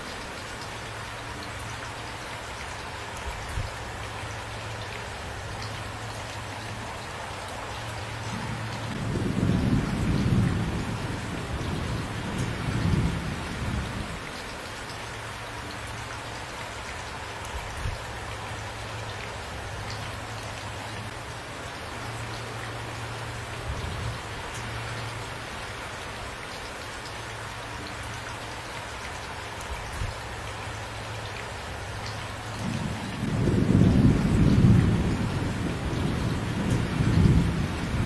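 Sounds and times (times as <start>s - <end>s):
steady rain: 0.0s - 38.0s
thunder rumbling: 8.2s - 14.2s, 32.6s - 38.0s.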